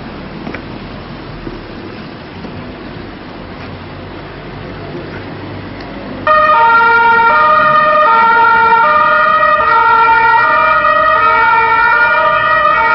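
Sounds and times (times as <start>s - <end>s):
police car two-tone siren: 6.2s - 12.9s.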